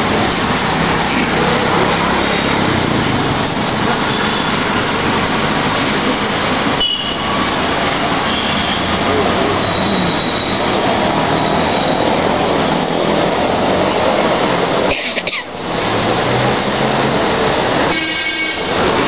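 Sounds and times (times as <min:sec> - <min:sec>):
road traffic rushing: 0:00.0 - 0:19.0.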